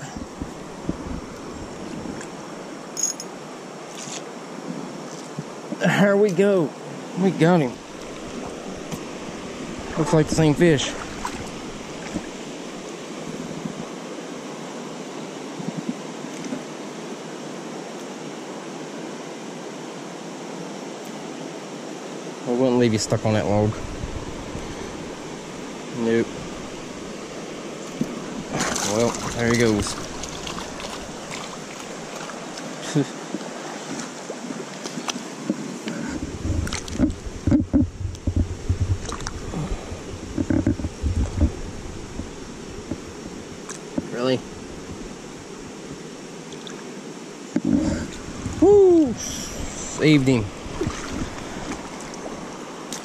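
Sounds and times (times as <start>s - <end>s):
river rushing over rocks: 0.0s - 37.6s, 41.5s - 53.0s
water sloshing around legs: 7.8s - 13.9s, 23.8s - 37.6s, 38.9s - 39.6s, 49.6s - 53.0s.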